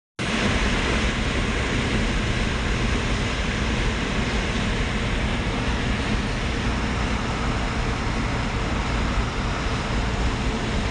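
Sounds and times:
car road and wind noise: 0.2 - 10.9.

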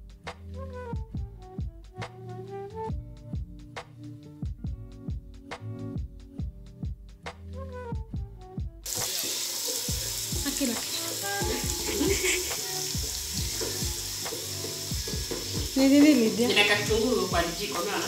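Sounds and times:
background music with a beat: 0.0 - 18.0
onions sizzling in a pot: 8.8 - 18.0
person speaking: 15.8 - 18.0.

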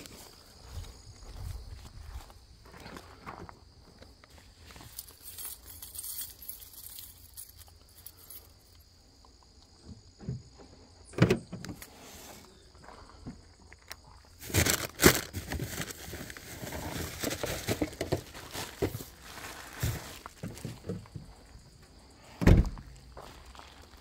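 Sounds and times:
rustling: 14.4 - 21.0.

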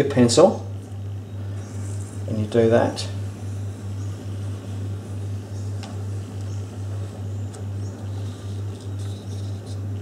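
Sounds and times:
pulsing low hum: 3.0 - 10.0
pencil scratching on paper: 8.0 - 10.0.

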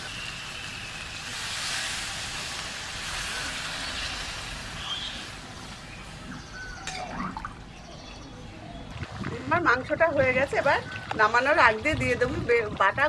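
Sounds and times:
water sizzling in hot pan: 0.0 - 6.3.

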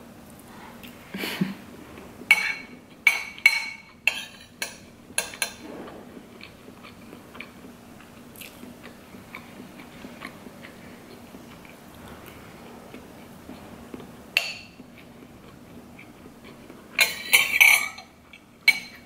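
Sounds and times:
person chewing: 6.2 - 17.0.

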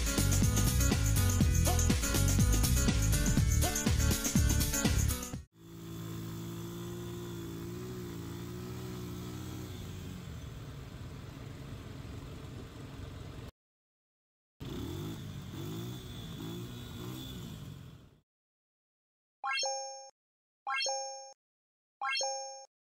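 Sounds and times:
quad bike engine revving: 0.2 - 13.2, 14.6 - 18.2.

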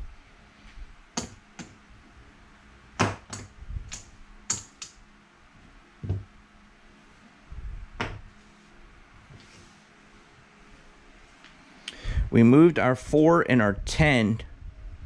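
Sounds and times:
puck knocking on table: 6.0 - 6.2.

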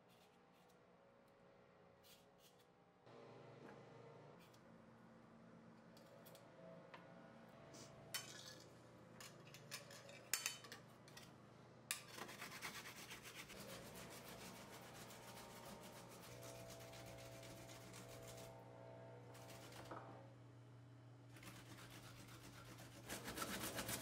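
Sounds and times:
ginger grated on hand grater: 21.4 - 24.0.

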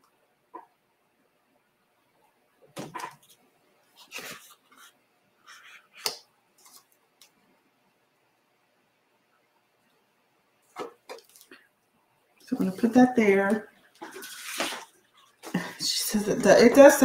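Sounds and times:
plastic sheet rustling: 14.0 - 15.7.

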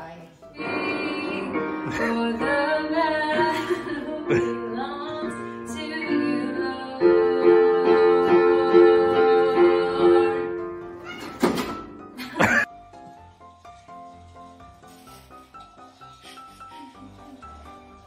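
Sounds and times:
digital piano chords: 0.4 - 11.0
woman singing: 0.5 - 10.6.

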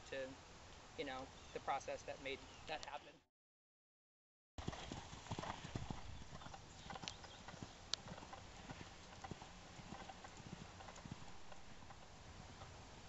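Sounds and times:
horse hoofbeats on sand: 4.6 - 12.6
sharp hoof click: 6.4 - 12.1.

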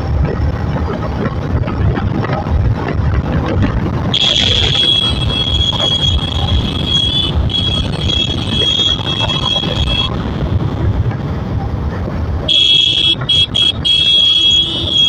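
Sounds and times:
wind noise on microphone: 0.0 - 15.0
motorcycle engine: 2.4 - 15.0
high steady squeal: 4.2 - 10.1.

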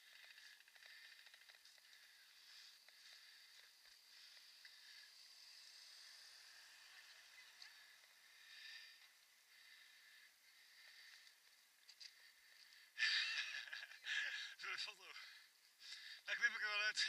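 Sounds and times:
faint clicks: 0.0 - 5.8, 10.8 - 12.8.

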